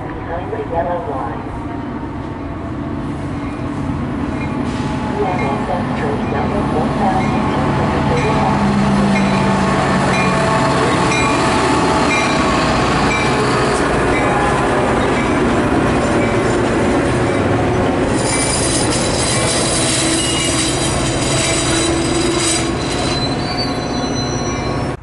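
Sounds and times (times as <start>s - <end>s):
train rolling on rails: 0.0s - 25.0s
train wheels squealing: 18.1s - 25.0s.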